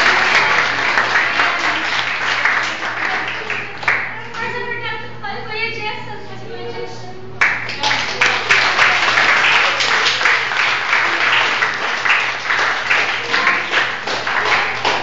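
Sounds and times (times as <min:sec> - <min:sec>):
crowd applauding: 0:00.0 - 0:04.4, 0:07.4 - 0:15.0
sharp hand claps: 0:00.0 - 0:04.4, 0:07.4 - 0:15.0.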